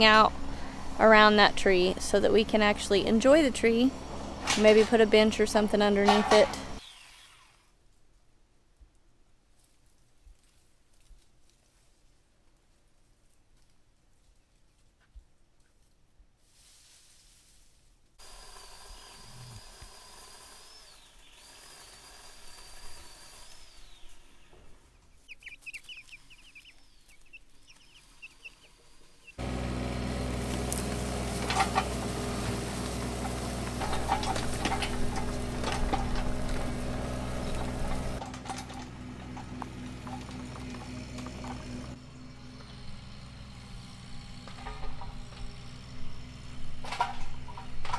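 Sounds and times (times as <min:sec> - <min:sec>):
diesel excavator engine: 0:00.0 - 0:06.8, 0:18.2 - 0:23.5, 0:28.3 - 0:47.9
chicks clucking and peeping: 0:25.2 - 0:28.7
bucket scraping and knocking: 0:30.4 - 0:41.8.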